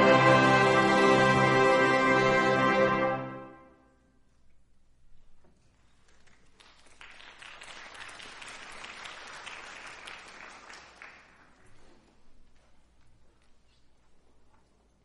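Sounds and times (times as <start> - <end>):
audience applauding: 6.0 - 11.8.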